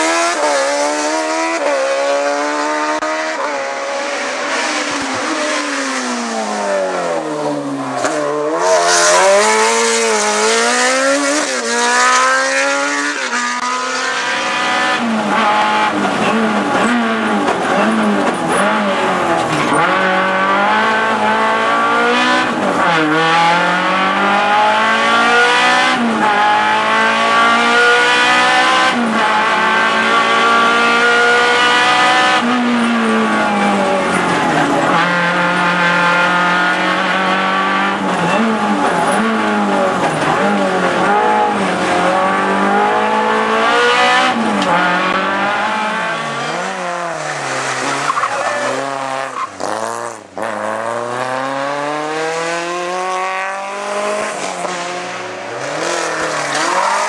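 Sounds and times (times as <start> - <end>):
rally car engine from inside cabin: 8.6 - 47.1.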